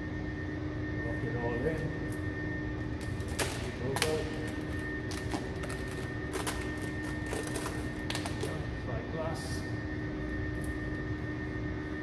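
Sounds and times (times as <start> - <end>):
steady background hum: 0.0 - 12.0
plastic film crackling: 3.0 - 8.6.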